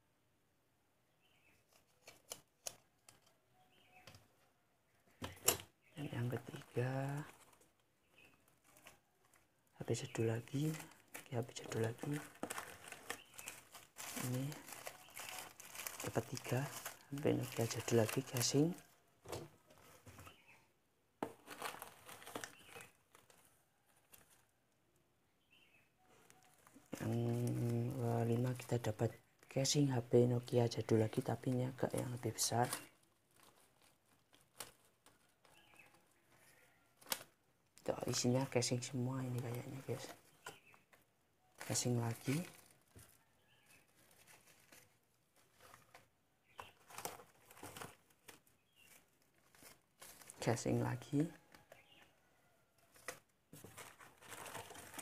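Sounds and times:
plastic bags crinkling: 0:05.3 - 0:20.0, 0:21.3 - 0:24.5, 0:26.1 - 0:29.7, 0:30.7 - 0:52.0, 0:52.9 - 0:55.0.

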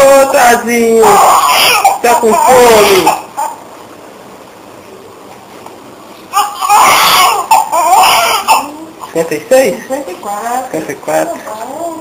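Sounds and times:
newborn baby crying: 0:00.2 - 0:03.6, 0:06.3 - 0:09.3.

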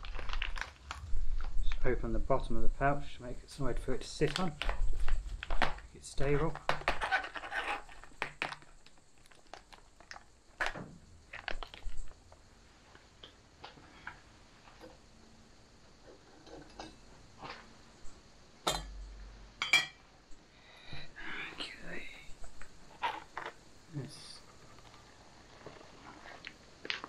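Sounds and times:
light knocks and clicks of cookware: 0:16.0 - 0:17.6, 0:18.6 - 0:19.0
metal mug clinking on table: 0:19.6 - 0:20.0.

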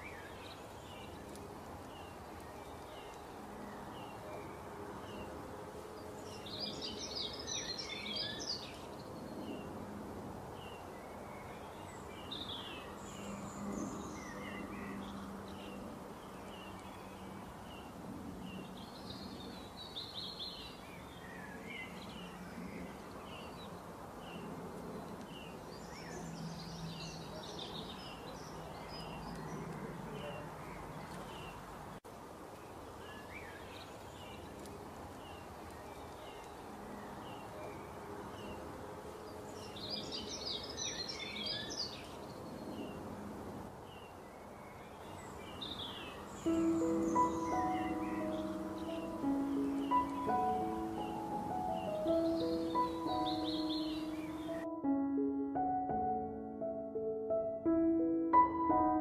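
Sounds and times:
small birds chirping and singing: 0:00.0 - 0:43.2, 0:43.8 - 0:55.0
steady background hiss: 0:00.0 - 0:59.0.

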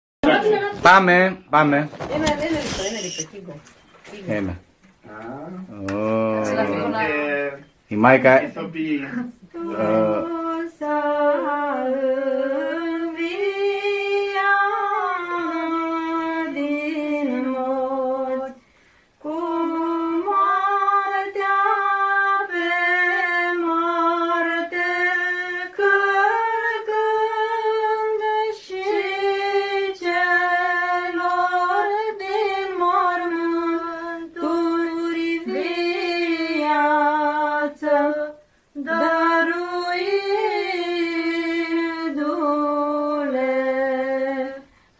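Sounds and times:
women singing unaccompanied chant: 0:00.2 - 0:00.8, 0:09.4 - 0:18.6, 0:19.2 - 0:44.8.

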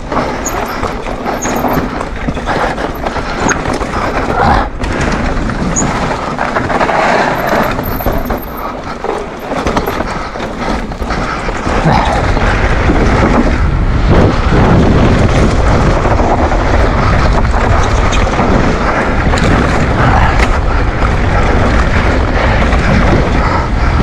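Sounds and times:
bike chain and frame rattling: 0:00.0 - 0:24.0
bike tyres rumbling over dirt: 0:00.0 - 0:24.0
wind buffeting microphone: 0:00.0 - 0:24.0.

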